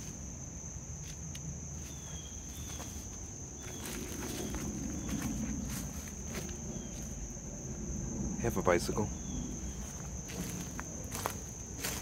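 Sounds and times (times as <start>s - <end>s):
crickets trilling: 0.0s - 12.0s
footsteps in dry brush: 1.0s - 7.2s, 9.6s - 12.0s.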